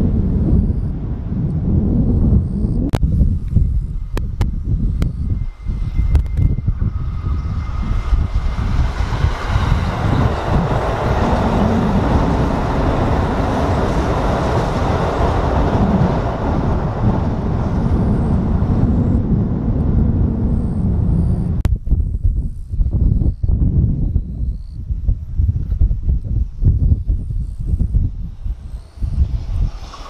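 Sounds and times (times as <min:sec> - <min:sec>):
electric train passing: 0:00.0 - 0:21.3, 0:27.5 - 0:30.0.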